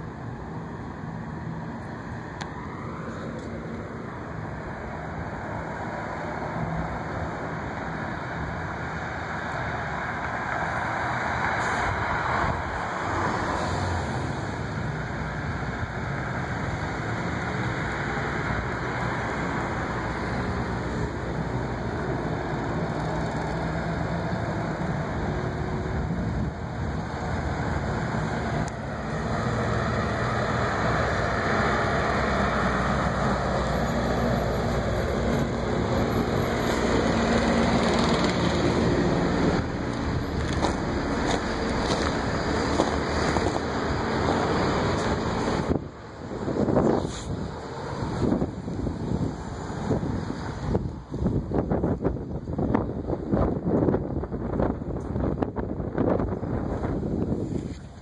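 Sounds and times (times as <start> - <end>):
street traffic noise: 0.0 - 58.0
vehicle passing: 27.0 - 51.1.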